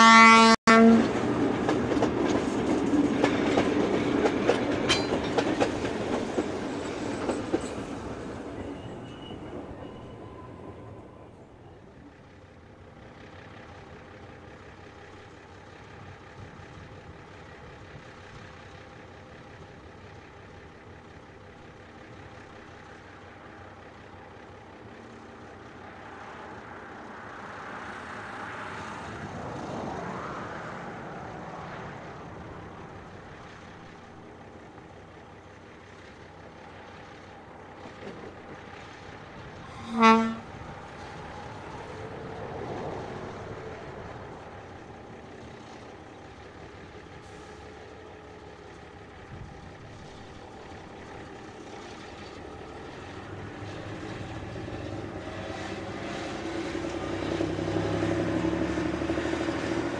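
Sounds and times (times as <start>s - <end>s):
short horn toot: 0.0s - 1.1s, 39.7s - 40.5s
railcar engine running: 0.0s - 59.9s.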